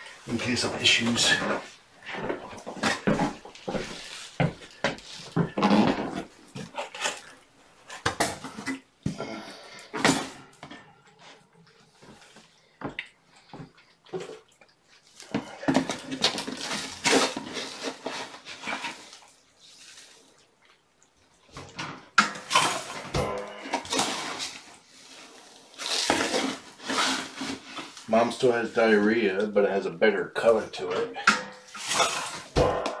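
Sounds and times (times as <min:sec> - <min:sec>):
scooping cat litter: 0:15.0 - 0:20.4, 0:23.8 - 0:28.6.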